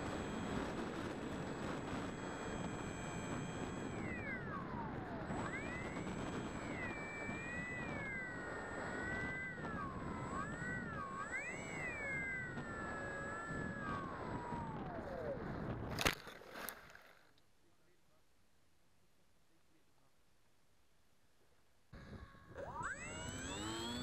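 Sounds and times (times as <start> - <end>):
electric motor and propeller whine: 0.0 - 16.4, 21.9 - 24.0.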